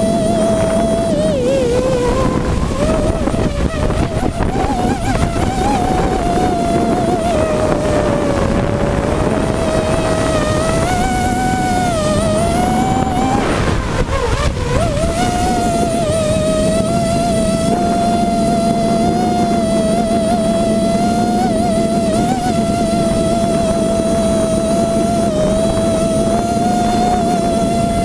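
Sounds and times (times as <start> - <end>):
drone motors and propellers whining: 0.0 - 28.0
rush of air noise: 0.0 - 28.0.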